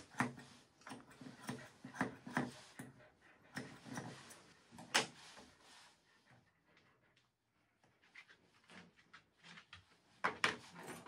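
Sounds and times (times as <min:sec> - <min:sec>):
scissors snipping fur: 0:00.0 - 0:05.2.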